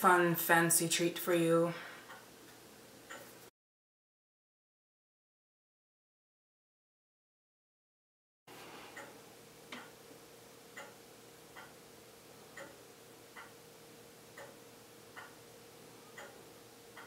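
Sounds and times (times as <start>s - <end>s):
faint regular ticking: 2.0s - 3.4s, 9.0s - 10.0s, 10.6s - 11.8s, 12.5s - 13.6s, 14.2s - 15.5s, 16.1s - 17.0s.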